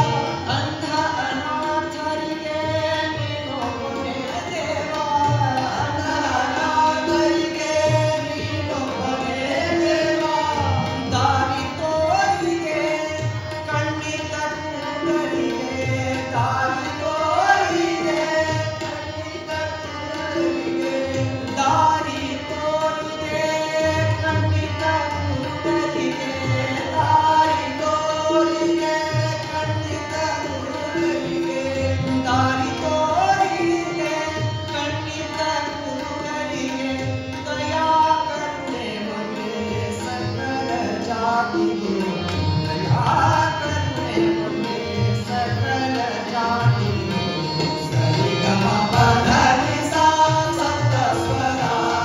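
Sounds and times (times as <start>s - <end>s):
harmonium: 0.0s - 52.0s
man singing classical vocals: 0.0s - 52.0s
tabla strokes: 39.8s - 52.0s.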